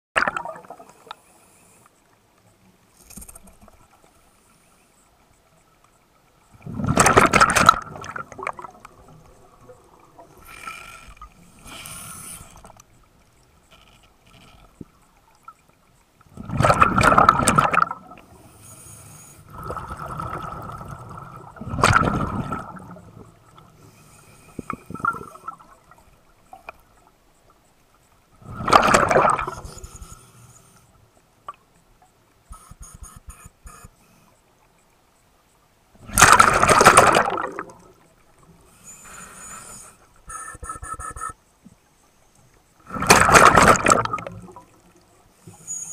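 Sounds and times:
exhaled bubbles rushing: 6.6s - 9.1s, 16.4s - 18.2s, 19.5s - 23.0s, 28.4s - 29.7s, 36.1s - 38.0s, 42.9s - 44.7s.

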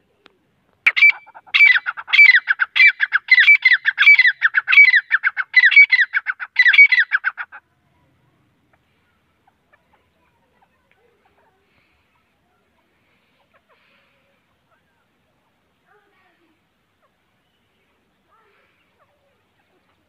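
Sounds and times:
francolin calling: 0.8s - 7.6s.

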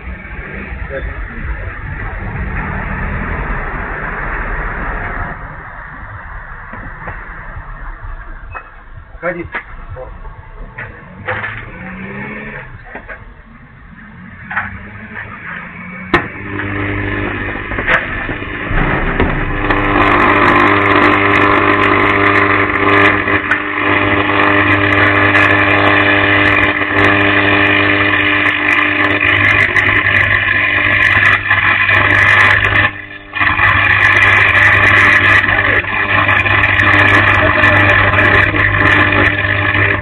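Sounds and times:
power cable arcing buzz: 0.0s - 40.0s
sharp crack: 14.0s - 40.0s.

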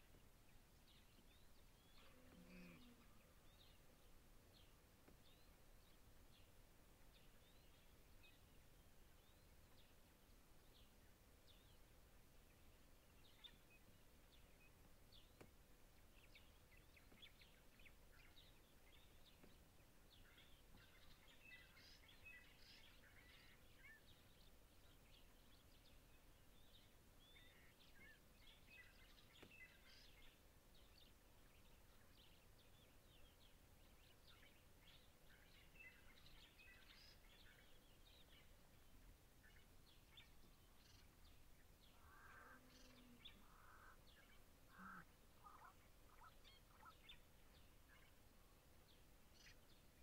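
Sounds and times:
low steady hiss: 0.0s - 50.0s
small birds chirping: 0.0s - 50.0s.

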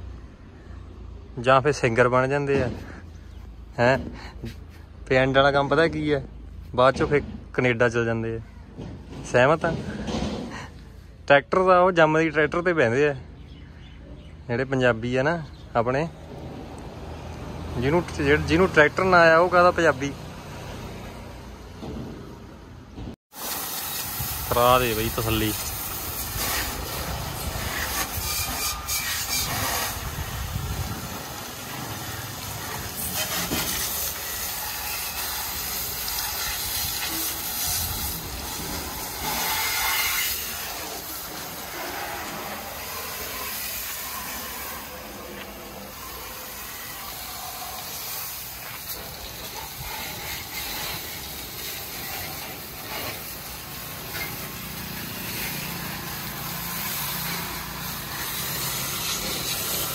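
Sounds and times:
pressure washer jet hissing: 23.3s - 59.9s.

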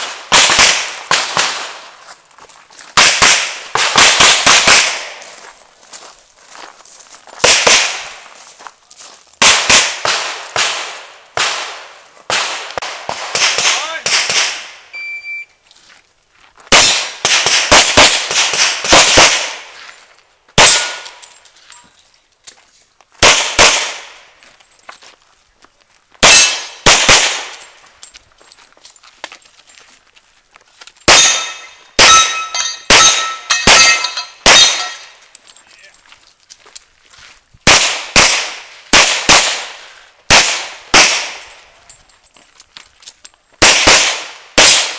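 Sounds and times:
metallic ring: 31.2s - 35.6s.

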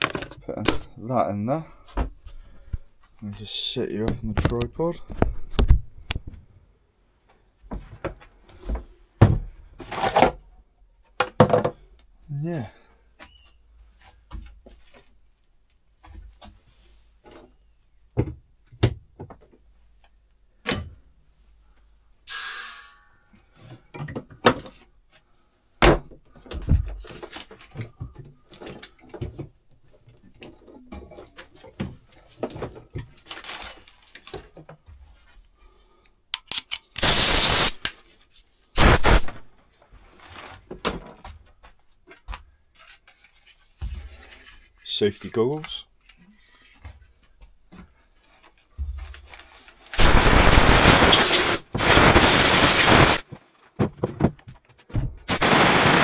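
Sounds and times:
knocks and clunks of objects moved: 0.0s - 1.0s, 1.8s - 6.6s, 7.3s - 11.9s, 15.9s - 21.1s, 23.6s - 35.6s, 39.7s - 49.9s, 53.2s - 55.3s
loud rushing hisses: 37.0s - 37.8s, 38.8s - 39.3s, 50.0s - 53.2s, 55.3s - 56.0s.

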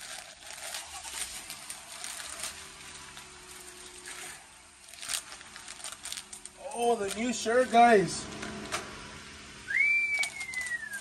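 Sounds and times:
plastic bag tearing: 0.0s - 7.6s, 10.0s - 11.0s
plastic crinkling and rustling: 0.0s - 8.8s, 9.9s - 11.0s.

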